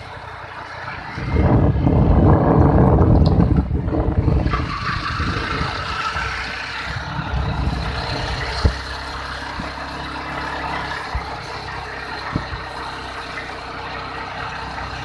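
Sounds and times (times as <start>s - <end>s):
motorcycle engine running: 0.0s - 15.0s
wind over microphone: 0.8s - 9.8s, 12.2s - 12.8s.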